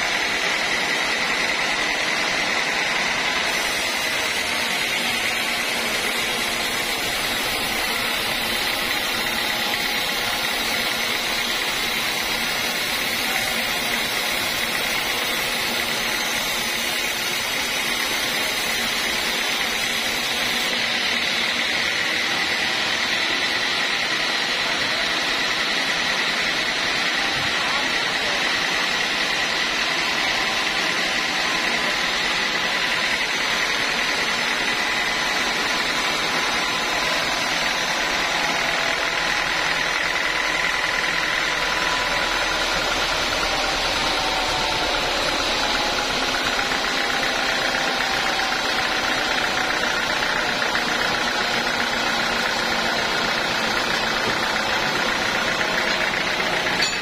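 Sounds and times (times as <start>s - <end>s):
band saw running with whine: 0.0s - 57.0s.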